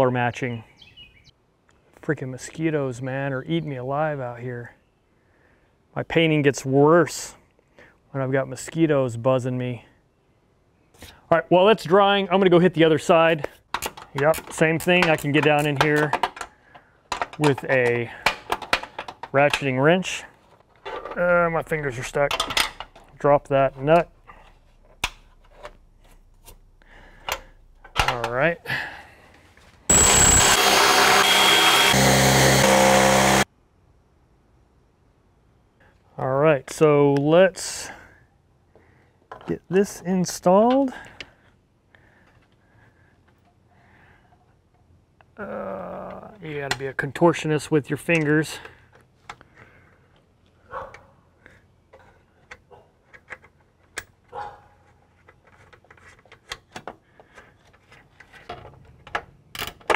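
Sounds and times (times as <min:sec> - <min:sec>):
power tool motor running: 0:29.9 - 0:33.5.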